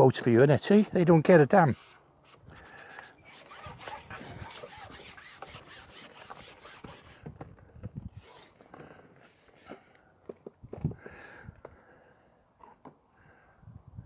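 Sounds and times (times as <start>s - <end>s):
fishing pole rubbing and scraping: 1.4s - 7.2s, 8.1s - 8.7s
high rising squeak: 3.2s - 7.0s, 8.2s - 8.6s.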